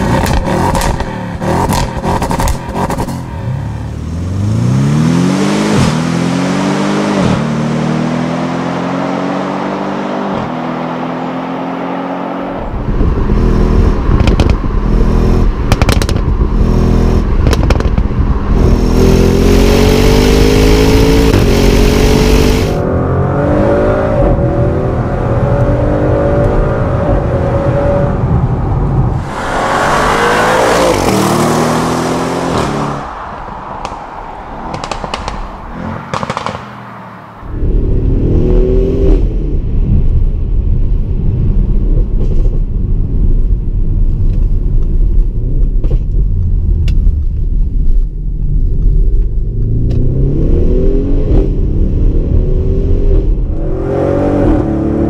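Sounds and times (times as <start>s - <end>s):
car engine accelerating hard: 0.0s - 39.7s
exhaust cracks: 12.9s - 16.6s, 17.2s - 18.9s, 29.1s - 36.9s
loud rushing noise: 28.3s - 39.1s.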